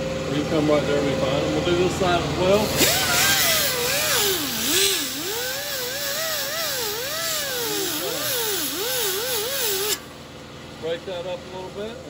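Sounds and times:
die grinder whining: 0:02.4 - 0:10.1
hiss of abrasion: 0:02.7 - 0:10.1.

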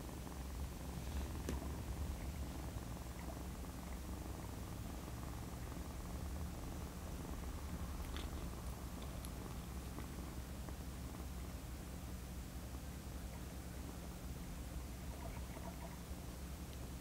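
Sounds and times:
kitten purring: 0:00.0 - 0:17.0
faint clicks: 0:08.0 - 0:11.3.

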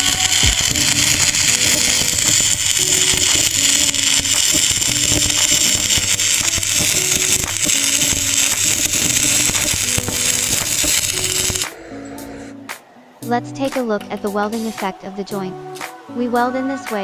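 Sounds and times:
welding arc hissing and crackling: 0:00.0 - 0:11.8
plucked guitar-like music: 0:00.0 - 0:17.0.

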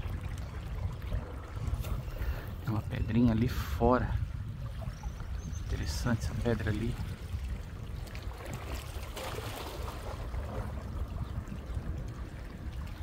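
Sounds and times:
waves lapping against rocks: 0:00.0 - 0:13.0
loud water splash: 0:08.3 - 0:10.7.

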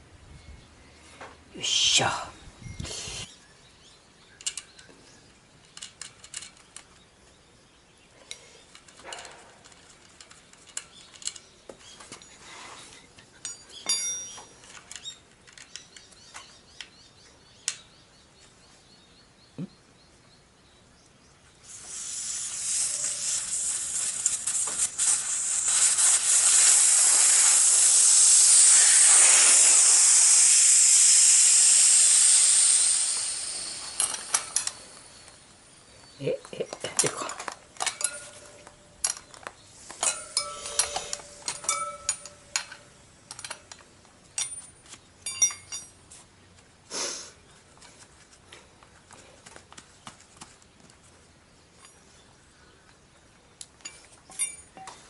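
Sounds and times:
air hissing out of tyre valve: 0:02.8 - 0:03.3, 0:21.6 - 0:35.7, 0:39.8 - 0:42.8, 0:46.9 - 0:47.4
tools clicking on wheel: 0:04.4 - 0:04.9, 0:05.6 - 0:07.0, 0:08.3 - 0:11.6, 0:32.1 - 0:35.4, 0:36.8 - 0:46.0.

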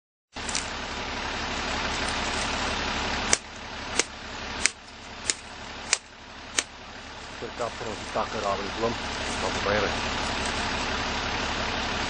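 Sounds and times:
pickup engine idling: 0:00.4 - 0:12.0
sharp clicks: 0:03.3 - 0:06.7.

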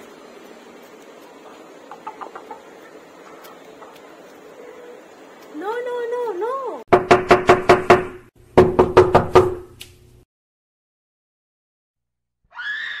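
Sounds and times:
knocking on a door: 0:06.9 - 0:09.6.

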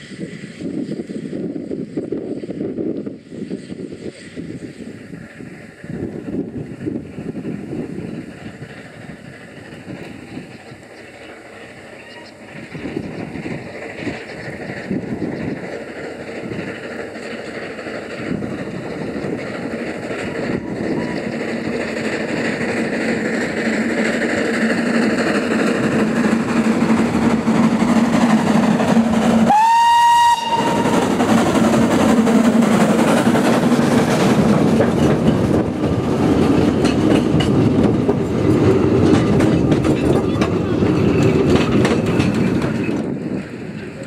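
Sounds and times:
steam locomotive passing: 0:00.0 - 0:44.0
steam whistle blast: 0:29.4 - 0:31.0.

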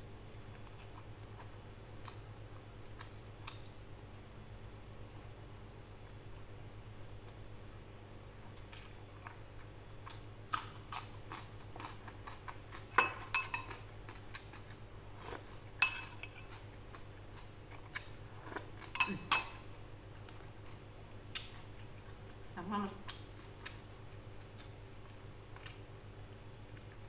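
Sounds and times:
spoon clinking on dishes: 0:13.0 - 0:13.8, 0:15.8 - 0:16.5, 0:18.9 - 0:19.7.

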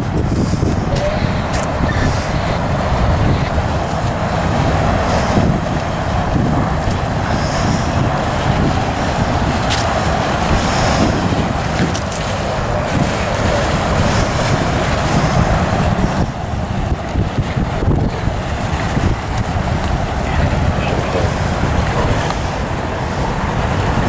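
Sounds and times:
outboard boat engine: 0:00.0 - 0:24.0
wind buffeting microphone: 0:00.0 - 0:24.0.

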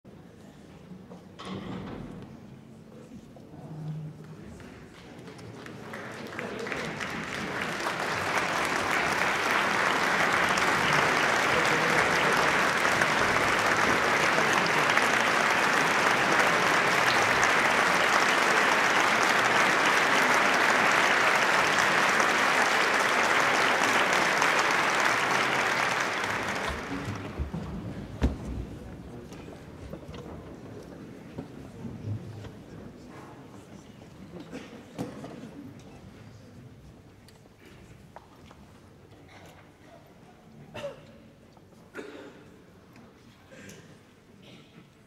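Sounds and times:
audience applauding: 0:05.0 - 0:27.8.

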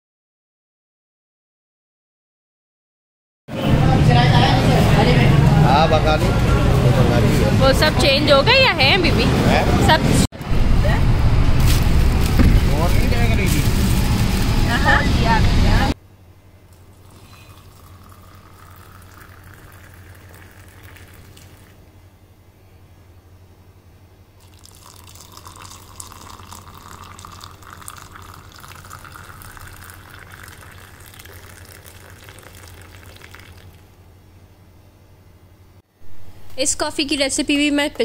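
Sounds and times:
milk pouring into glass mug: 0:16.8 - 0:21.8, 0:24.4 - 0:33.8.

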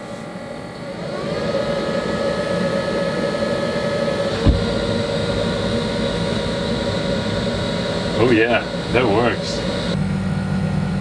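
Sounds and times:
blower fan whining: 0:00.0 - 0:11.0
fans humming: 0:00.0 - 0:11.0
thump: 0:04.4 - 0:04.7.

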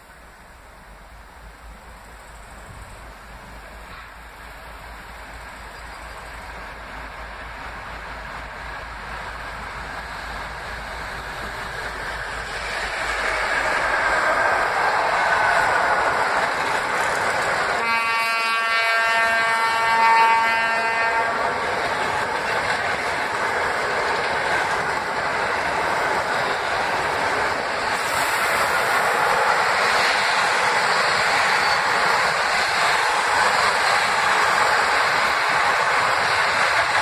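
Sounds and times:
train wheels on rails: 0:00.0 - 0:37.0
train horn: 0:17.7 - 0:21.6.

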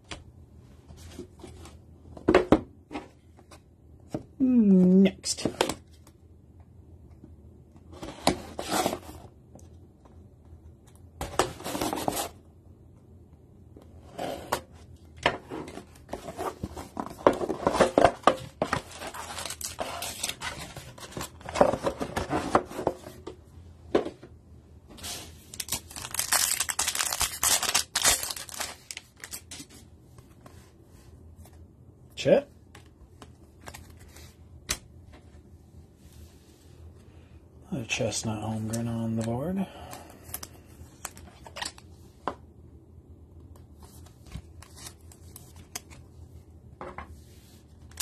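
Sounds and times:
plastic wrap rustling: 0:25.0 - 0:29.7
foil pack ripped open: 0:25.5 - 0:29.4
foil card packs crackling: 0:25.5 - 0:29.6.

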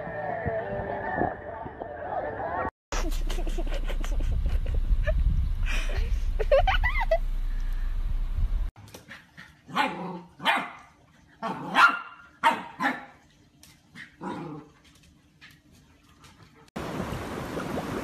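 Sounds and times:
low rumble: 0:03.3 - 0:08.7
dog barking: 0:09.7 - 0:10.9, 0:11.6 - 0:13.1.

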